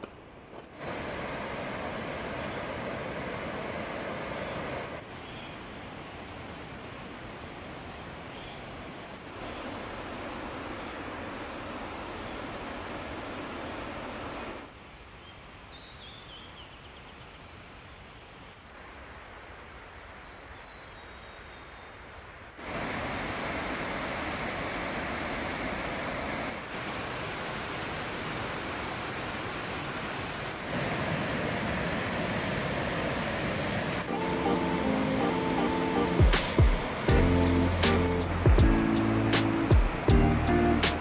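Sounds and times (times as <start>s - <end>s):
water rushing over rocks: 0.0s - 5.1s, 22.6s - 41.0s.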